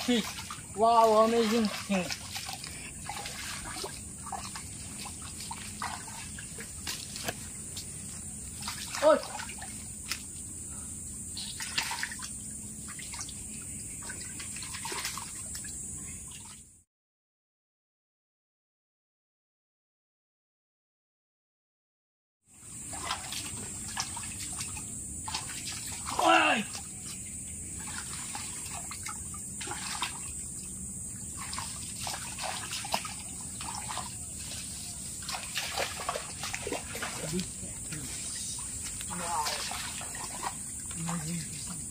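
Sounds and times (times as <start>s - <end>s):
hands splashing in water: 0.0s - 7.9s, 11.4s - 12.3s, 27.8s - 30.3s, 31.4s - 37.5s, 38.8s - 41.4s
steady high hiss: 36.1s - 41.9s.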